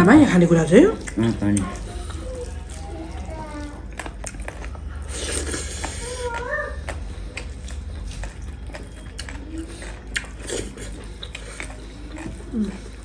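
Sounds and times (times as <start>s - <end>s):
mouth chewing smacks: 3.8s - 13.0s.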